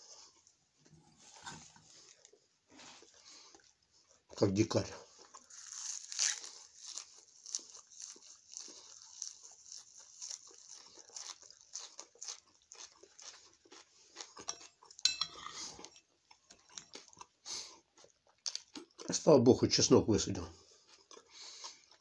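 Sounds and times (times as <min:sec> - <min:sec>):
man chewing crunchy parsley: 0:01.6 - 0:19.2, 0:20.6 - 0:22.0
spoon clinking in ceramic bowl: 0:15.0 - 0:15.4.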